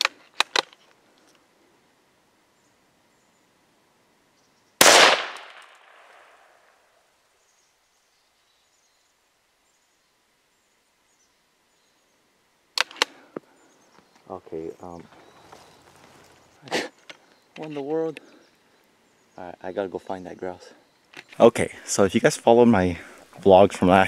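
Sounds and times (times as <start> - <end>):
rifle shot: 4.8 - 6.6.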